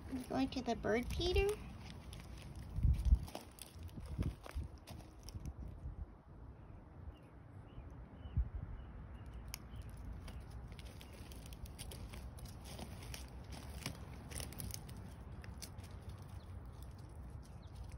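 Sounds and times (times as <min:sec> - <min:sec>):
footsteps on gravel and leaves: 0:00.0 - 0:05.5, 0:09.8 - 0:17.9
low microphone rumble: 0:00.0 - 0:06.2.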